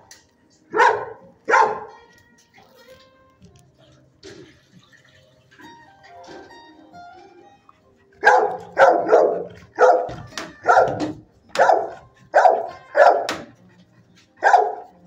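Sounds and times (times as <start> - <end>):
dog barking: 0.7 - 2.0, 8.2 - 13.6, 14.4 - 15.0.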